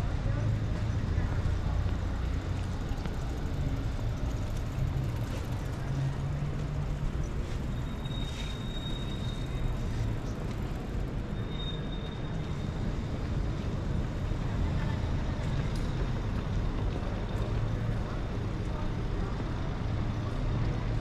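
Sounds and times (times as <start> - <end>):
city traffic rumble: 0.0 - 21.0.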